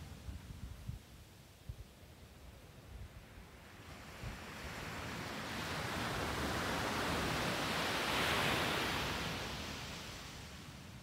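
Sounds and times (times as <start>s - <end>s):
wave breaking on sandy beach: 4.7s - 10.6s.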